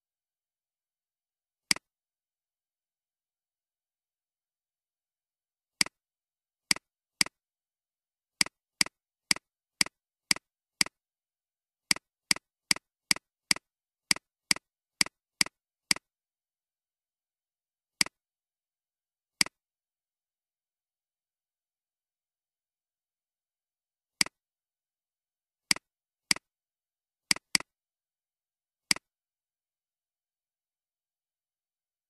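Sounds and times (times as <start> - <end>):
computer mouse clicks: 8.4 - 11.0, 11.9 - 16.1, 27.3 - 27.7.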